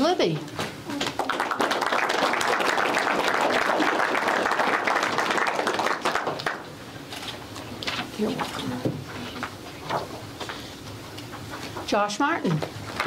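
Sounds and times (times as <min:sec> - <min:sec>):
audience clapping: 0:00.9 - 0:06.8.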